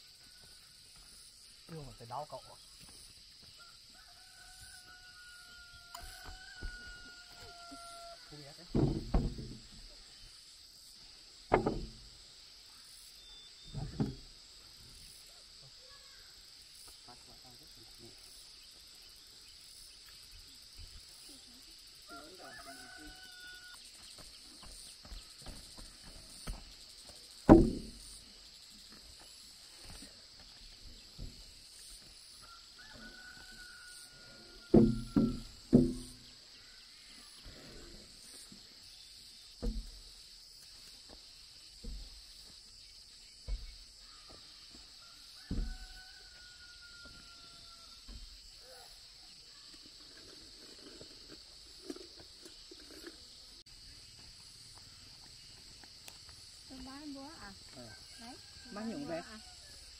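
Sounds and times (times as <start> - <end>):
high insect drone: 0.0 - 59.9
rooster crowing: 3.5 - 8.5, 22.1 - 23.9, 32.4 - 35.8, 45.0 - 48.2, 57.7 - 59.9
heavy blows on wood: 11.5 - 12.1, 27.5 - 28.2, 34.7 - 36.3.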